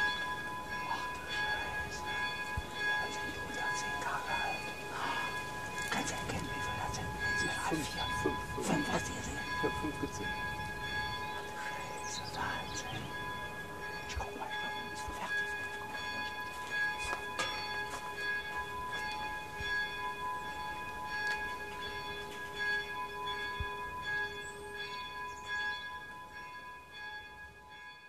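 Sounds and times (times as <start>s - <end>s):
bells ringing: 0.0s - 28.0s.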